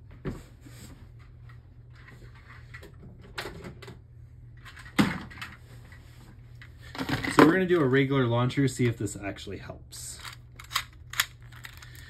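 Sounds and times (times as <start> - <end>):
plastic toys clicking and rustling: 10.1 - 12.0.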